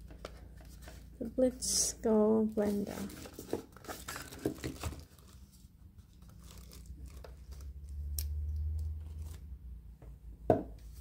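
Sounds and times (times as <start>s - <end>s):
plastic packaging crinkling: 2.6s - 7.9s.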